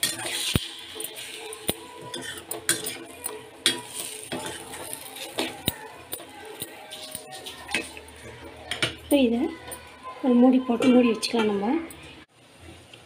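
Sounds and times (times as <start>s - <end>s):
metal spatula scraping a pan: 0.0s - 10.0s.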